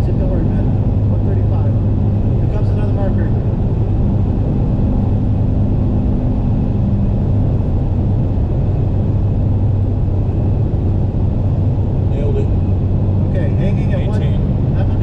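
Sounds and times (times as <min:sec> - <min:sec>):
car engine drone: 0:00.0 - 0:15.0
wind noise: 0:00.0 - 0:15.0.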